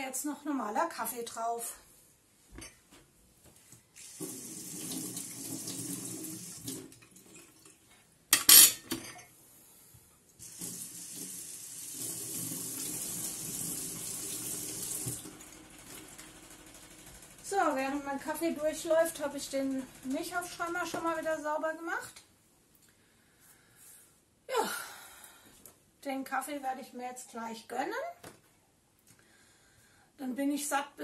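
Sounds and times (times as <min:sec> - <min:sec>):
tap water running into sink: 0:04.0 - 0:07.8, 0:10.4 - 0:16.1.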